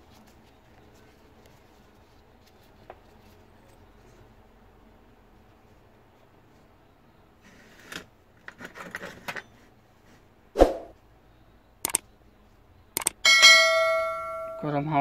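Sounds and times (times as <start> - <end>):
quick double click: 11.8 - 12.0, 13.0 - 13.2.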